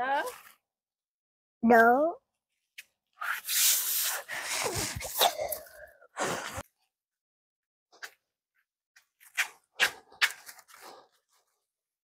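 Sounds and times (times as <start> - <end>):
plastic sandal footsteps on concrete: 9.0 - 11.0.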